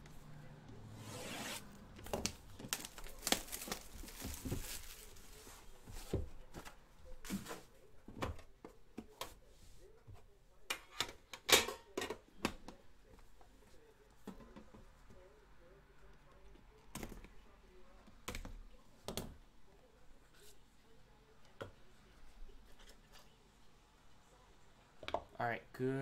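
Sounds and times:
shrink wrap tearing: 1.2 - 5.2.

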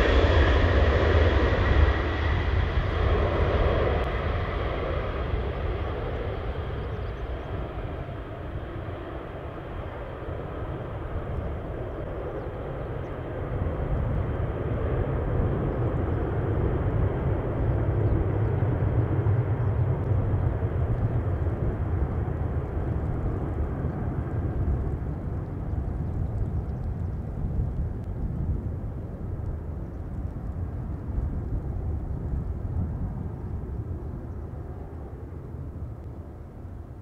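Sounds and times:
jet engines roaring: 0.0 - 27.2.

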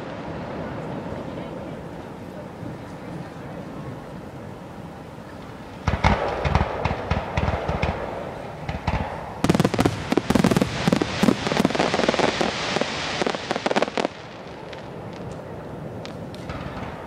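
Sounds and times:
fireworks hiss: 5.2 - 17.0
fireworks crackling pops: 5.4 - 17.0.

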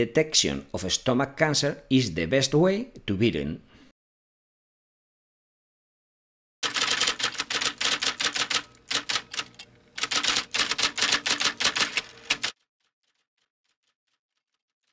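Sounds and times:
typewriter keystrokes: 6.6 - 12.6.

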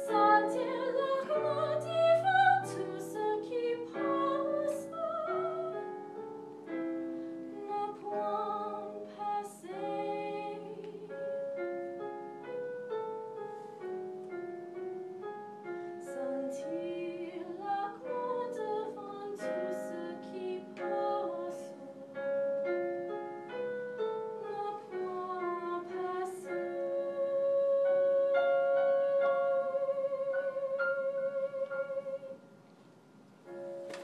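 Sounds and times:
woman singing classical song: 0.0 - 12.0, 16.0 - 22.7, 24.2 - 32.5
piano accompaniment: 0.0 - 34.0.

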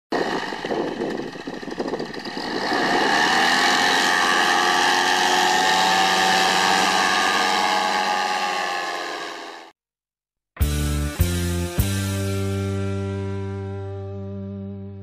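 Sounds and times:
paramotor engine revving: 0.1 - 9.7.

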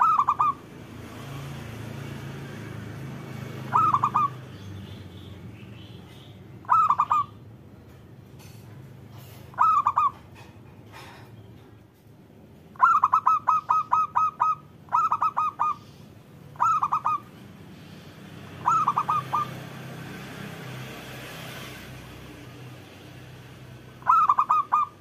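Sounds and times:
dove cooing: 0.0 - 0.6, 3.5 - 4.4, 6.6 - 7.3, 9.5 - 10.2, 12.8 - 17.4, 18.6 - 19.6, 24.0 - 25.0.

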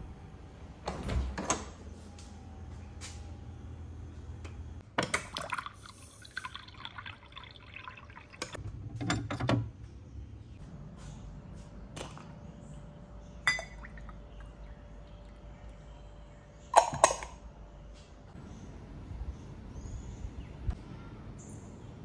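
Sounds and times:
water filling a glass cup: 5.2 - 8.6.

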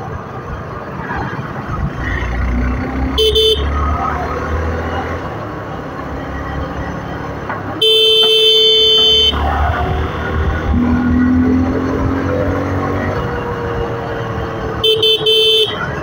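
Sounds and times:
vehicle horn honking: 3.2 - 3.8, 7.8 - 10.6, 14.8 - 16.0.

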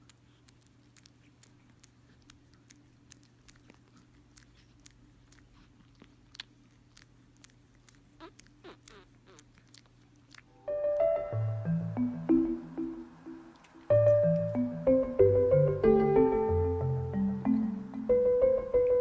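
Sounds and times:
kitten mouth clicks and smacks: 0.0 - 10.5
faint steady hum: 0.0 - 19.0.

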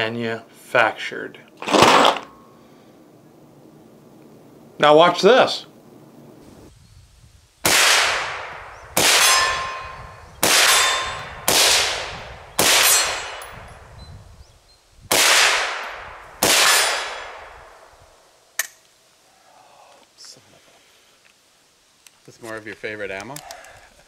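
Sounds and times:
rifle shots with echo: 7.6 - 13.6, 15.1 - 17.9.

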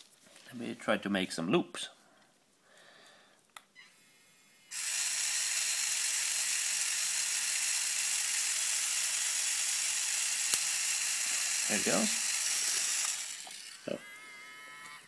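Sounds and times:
pen motor high whir: 3.8 - 15.0.

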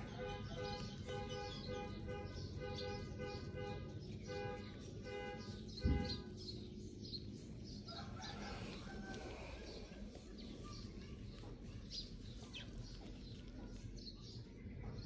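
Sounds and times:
small birds chirping: 0.0 - 15.0
rooster-like crowing call: 7.9 - 9.7.

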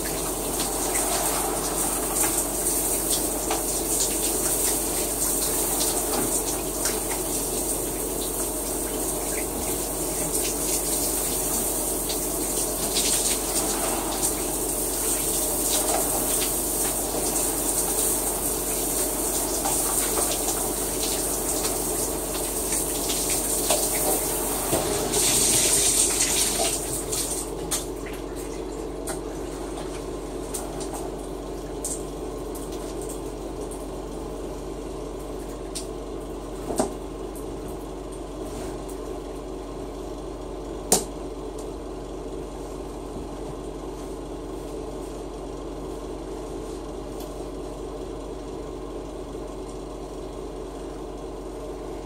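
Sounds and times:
shower water spraying: 0.0 - 27.6.

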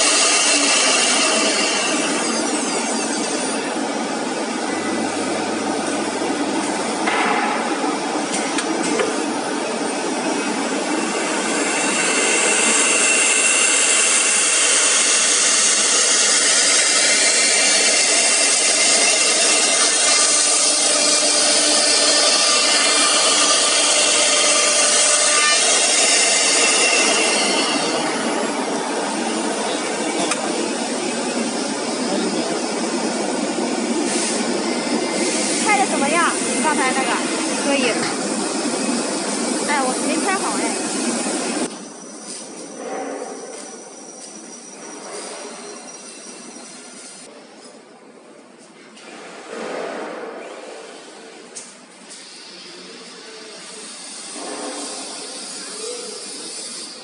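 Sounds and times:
router spindle whining and cutting: 11.4 - 33.1.

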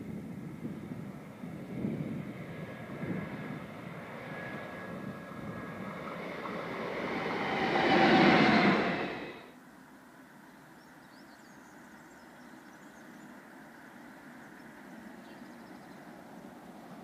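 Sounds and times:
electric locomotive passing: 0.4 - 9.6.

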